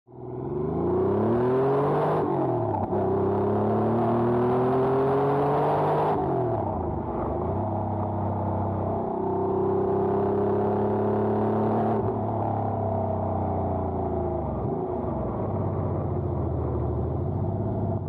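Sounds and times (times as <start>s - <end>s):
car engine revving through gears: 0.4s - 6.8s, 9.4s - 12.2s.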